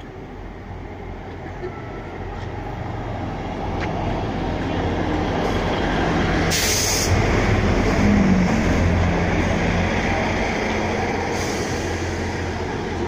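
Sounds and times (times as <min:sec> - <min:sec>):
diesel train engine hum: 0:00.0 - 0:13.0
wheels rumbling on rail: 0:00.0 - 0:13.0
air hiss: 0:06.5 - 0:07.2, 0:11.3 - 0:12.5.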